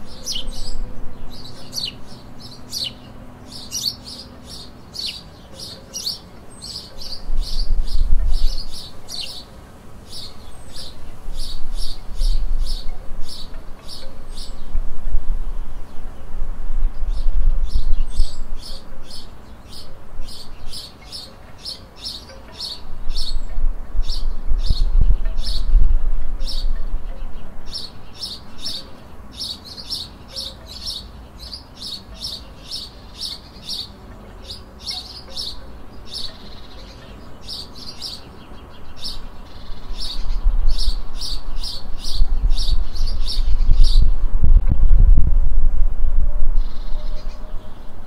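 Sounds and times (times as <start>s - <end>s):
songbird chirping: 0.0s - 45.3s, 46.5s - 48.0s.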